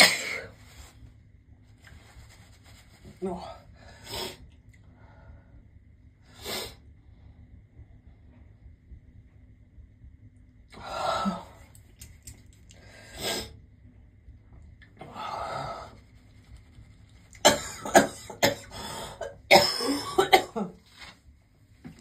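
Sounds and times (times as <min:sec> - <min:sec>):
woman coughing: 0:00.0 - 0:00.5, 0:17.4 - 0:20.8
woman sneezing: 0:00.0 - 0:00.5.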